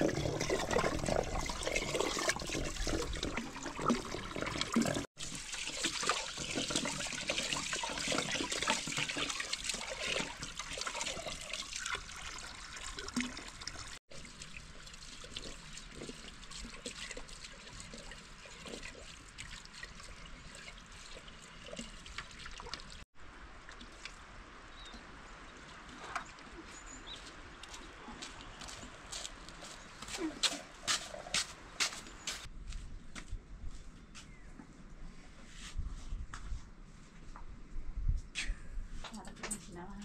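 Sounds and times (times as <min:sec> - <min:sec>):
water running and splashing: 0:00.0 - 0:24.4.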